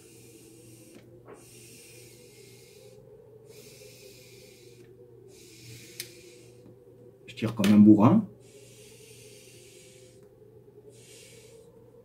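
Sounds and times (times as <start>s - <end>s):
airy hiss of pipe draws: 0.0s - 6.7s, 8.4s - 10.3s, 10.9s - 11.8s.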